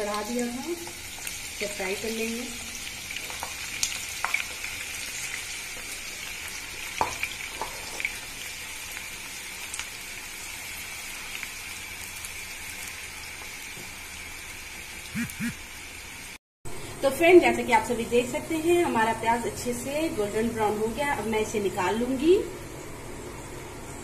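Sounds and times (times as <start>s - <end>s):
onions sizzling in hot oil: 0.0s - 15.1s.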